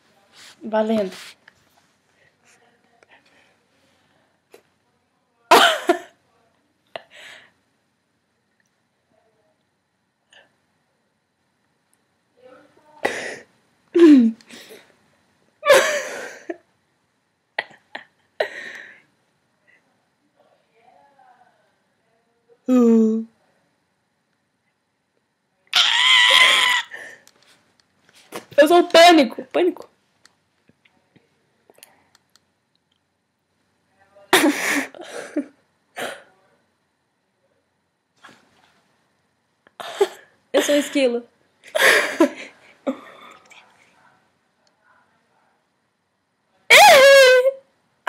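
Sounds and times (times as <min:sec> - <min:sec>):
woman rasping mock screams: 0:25.7 - 0:27.2, 0:46.7 - 0:47.6
girls laughing: 0:25.8 - 0:27.2.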